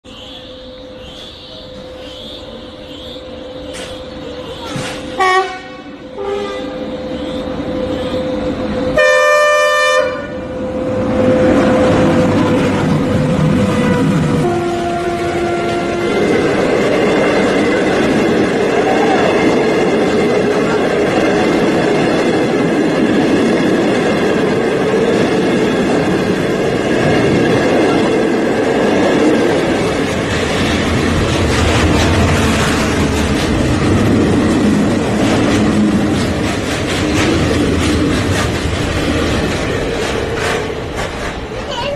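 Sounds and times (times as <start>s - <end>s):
train passing close by: 0.0s - 41.9s
deep locomotive hum: 0.1s - 41.9s
electric locomotive horn blasts: 5.2s - 8.2s, 8.9s - 10.6s, 12.4s - 16.7s.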